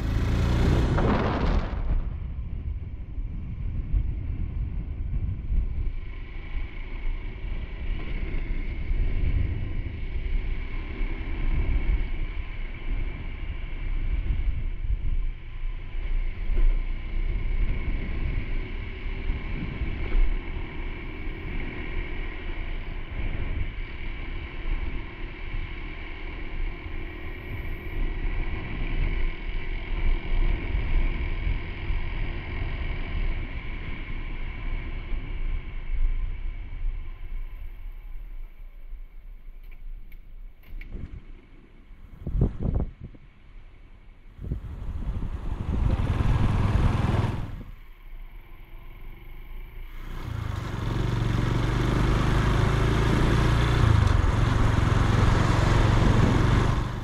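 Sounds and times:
motorcycle engine running: 0.0s - 3.0s, 44.4s - 47.8s, 49.9s - 57.0s
wind buffeting microphone: 0.0s - 6.2s, 42.0s - 43.4s, 44.4s - 47.8s, 53.7s - 57.0s.

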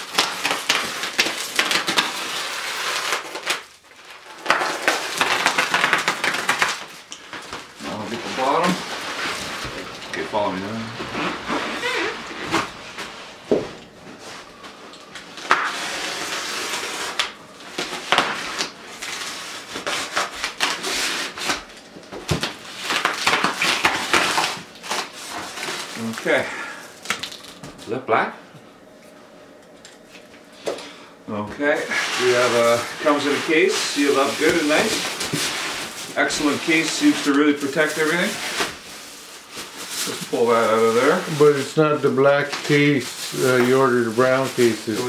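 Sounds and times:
tape and plastic crackling: 0.0s - 28.0s, 31.8s - 45.0s
knife slicing packing tape: 0.1s - 3.7s, 4.4s - 6.9s, 15.4s - 21.7s, 22.3s - 25.8s.

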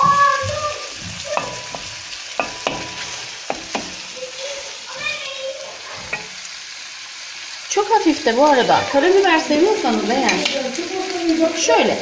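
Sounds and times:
wooden spoon knocking and scraping pan: 0.0s - 4.2s, 6.0s - 6.5s
chicken sizzling in frying pan: 0.0s - 12.0s.

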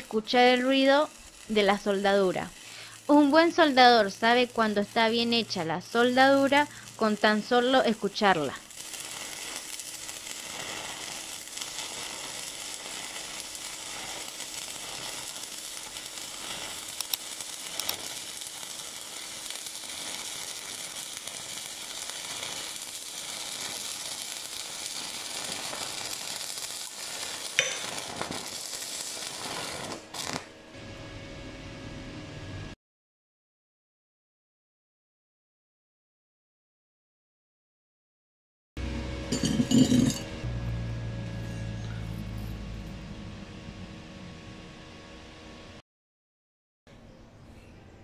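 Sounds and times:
sharp welding pops: 0.0s - 30.6s
welding arc crackling: 0.0s - 31.0s.

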